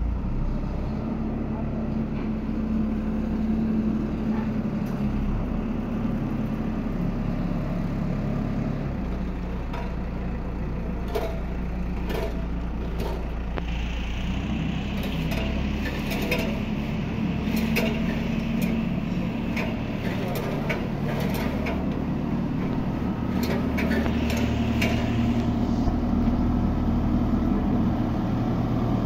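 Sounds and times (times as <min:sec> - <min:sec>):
diesel engine humming: 0:00.0 - 0:29.0.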